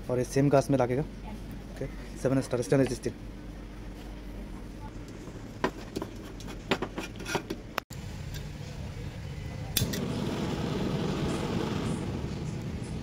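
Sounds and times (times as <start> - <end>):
gas burners rushing: 8.2 - 13.0.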